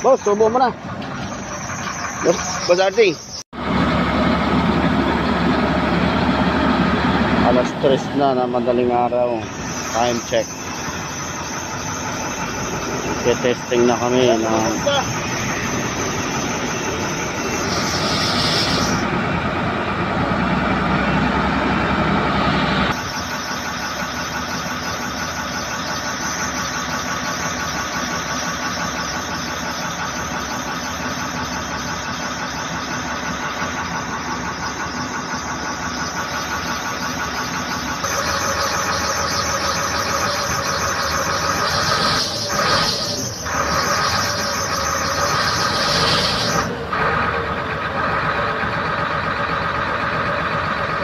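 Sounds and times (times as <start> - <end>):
high whine: 0.0 - 19.2, 22.8 - 46.9
diesel engine running: 0.0 - 51.0.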